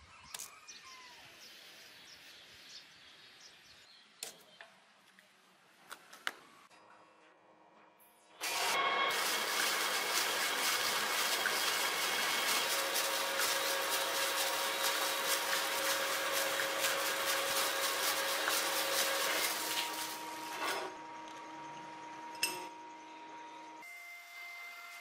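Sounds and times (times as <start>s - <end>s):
shop tool motor whine: 8.4s - 22.5s.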